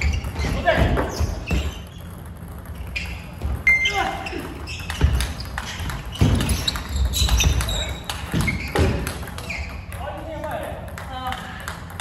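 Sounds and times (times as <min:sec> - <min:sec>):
ping pong ball clicking off paddles: 0:04.7 - 0:12.0.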